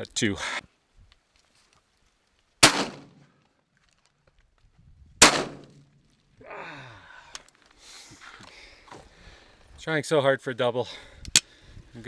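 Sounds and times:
shotgun shots: 0:02.6 - 0:03.2, 0:05.2 - 0:05.8.

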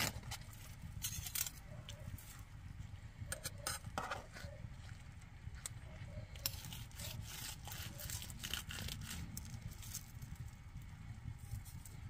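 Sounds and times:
knife sawing through crisp skin: 0:06.4 - 0:10.0.

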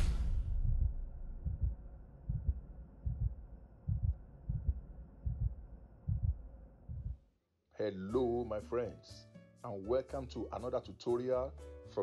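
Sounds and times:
faint steady hum: 0:00.0 - 0:07.1
deep low thumps: 0:00.0 - 0:07.2.

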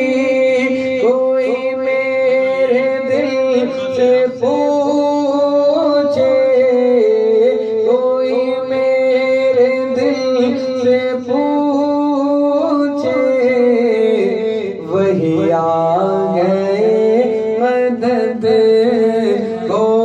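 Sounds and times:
men singing devotional song: 0:00.0 - 0:20.0.

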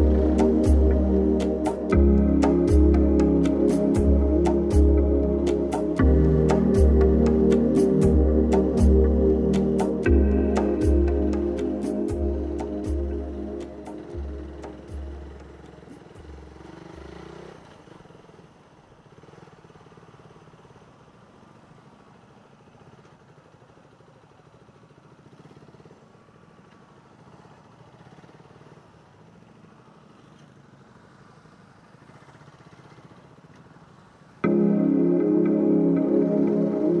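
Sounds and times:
background music: 0:00.0 - 0:17.2, 0:34.4 - 0:37.0
music track: 0:00.0 - 0:17.2, 0:34.4 - 0:37.0
motorcycle engine running: 0:00.0 - 0:34.8.

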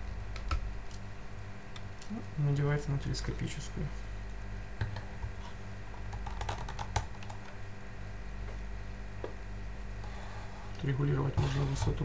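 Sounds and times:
plastic parts clicking and knocking: 0:06.1 - 0:07.4.

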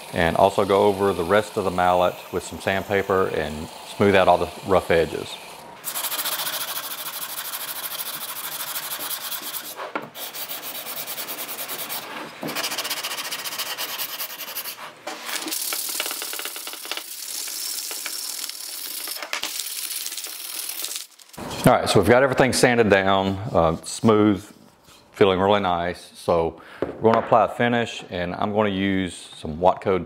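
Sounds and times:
sandpaper rasping on wood: 0:00.2 - 0:19.7
sandpaper rubbed along handle: 0:00.2 - 0:22.0.

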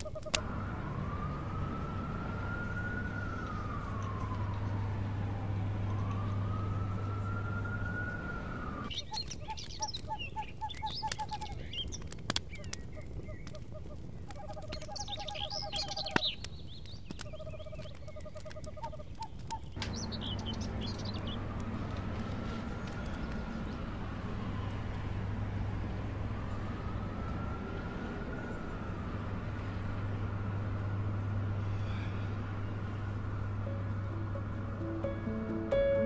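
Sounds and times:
siren wailing: 0:00.0 - 0:08.9, 0:19.8 - 0:36.0
birds chirping: 0:00.0 - 0:36.0
low city hum: 0:00.0 - 0:36.0
sharp cracks: 0:15.8 - 0:31.6.

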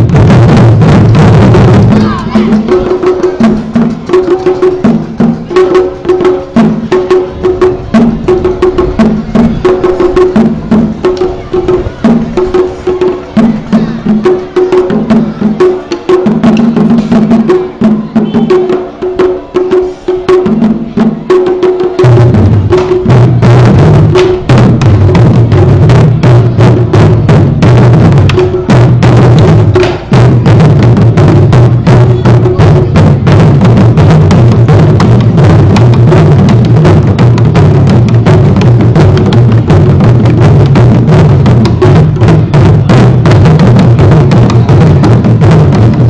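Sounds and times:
deep barrel drum strokes: 0:00.0 - 0:46.0
drum stick strikes: 0:11.0 - 0:14.9, 0:28.2 - 0:30.2.

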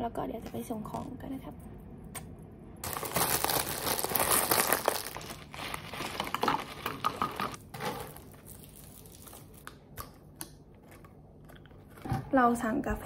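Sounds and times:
plastic bag crinkling: 0:02.8 - 0:09.7.

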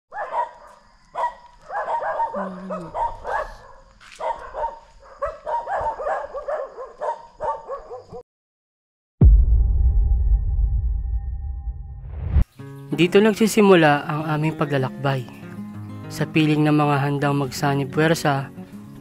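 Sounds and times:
dog barking: 0:00.1 - 0:08.2.

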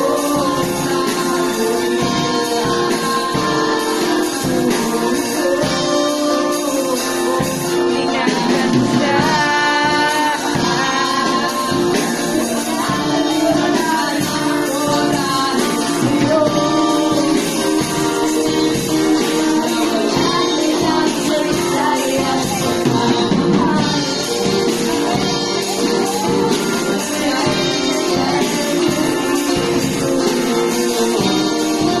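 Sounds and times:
drum kit: 0:00.0 - 0:32.0
person singing: 0:00.0 - 0:32.0
strummed acoustic guitars: 0:00.0 - 0:32.0.

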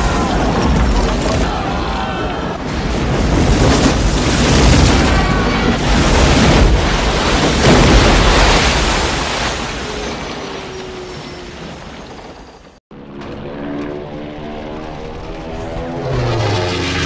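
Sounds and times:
crashing and splashing spray: 0:02.6 - 0:12.6.

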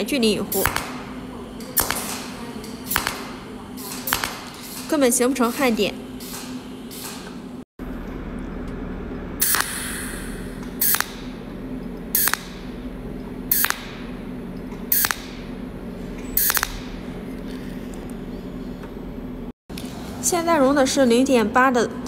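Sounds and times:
welding machine hissing zaps: 0:00.0 - 0:07.6, 0:09.4 - 0:14.3, 0:14.9 - 0:17.3
steady low hum: 0:00.0 - 0:22.0.

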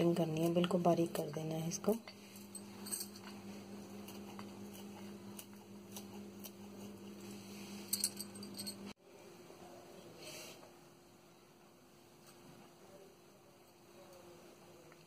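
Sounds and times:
steady low hum: 0:00.0 - 0:15.0
scissors snipping leaf: 0:04.0 - 0:06.9.

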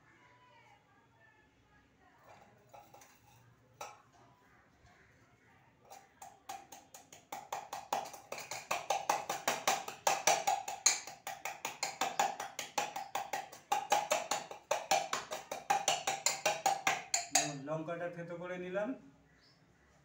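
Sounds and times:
pestle knocking in a steel cup: 0:02.6 - 0:04.0, 0:05.9 - 0:17.7.

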